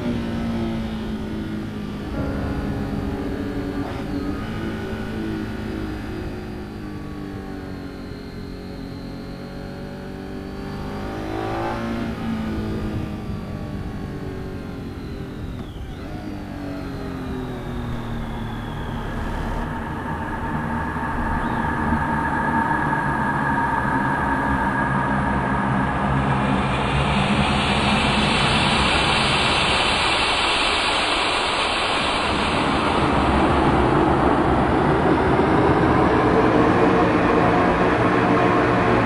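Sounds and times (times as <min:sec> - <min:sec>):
motorcycle engine running: 0:00.0 - 0:23.2.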